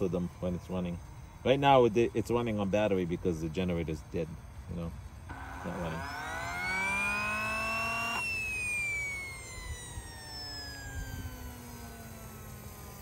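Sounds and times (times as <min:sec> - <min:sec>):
turbine whine coasting down: 0:00.0 - 0:13.0
starter motor whine: 0:05.3 - 0:13.0.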